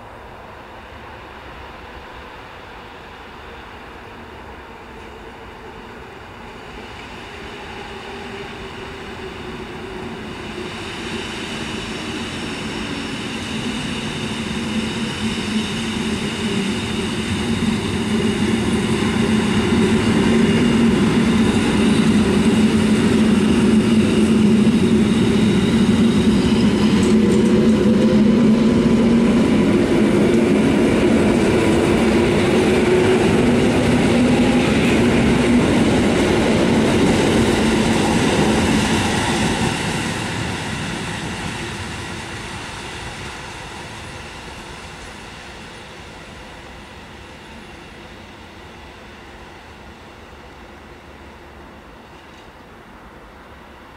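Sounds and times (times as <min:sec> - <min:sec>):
electric train passing: 0:00.0 - 0:53.9
train hum: 0:00.0 - 0:53.9
wheels rumbling on rails: 0:06.3 - 0:46.4.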